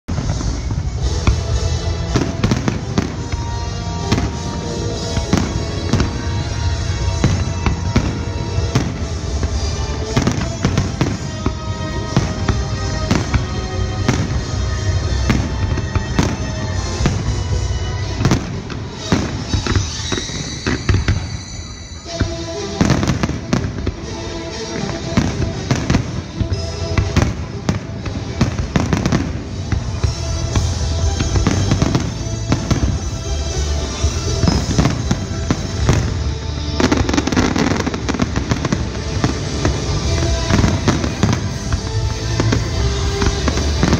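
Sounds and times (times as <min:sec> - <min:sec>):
music playing: 0:00.1 - 0:43.9.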